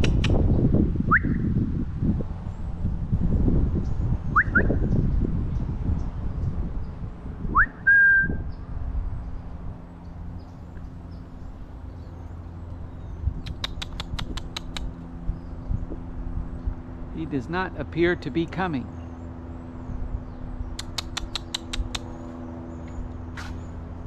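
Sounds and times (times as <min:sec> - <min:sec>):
person whistling: 0:07.6 - 0:08.4
sharp clicks: 0:13.4 - 0:15.0, 0:20.8 - 0:22.1.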